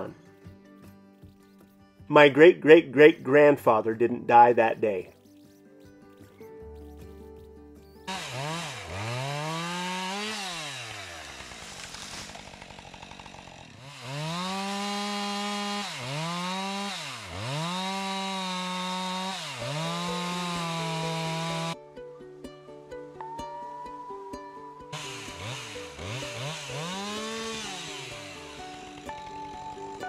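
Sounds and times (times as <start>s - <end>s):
soft music: 0.0s - 8.9s, 19.5s - 30.0s
chainsaw revving: 8.1s - 21.8s, 24.9s - 30.0s.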